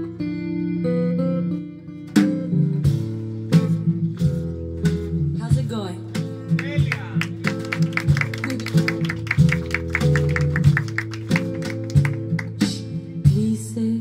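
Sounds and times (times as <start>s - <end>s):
acoustic guitar strumming: 0.0s - 13.2s
percussion steady beat: 5.5s - 13.0s.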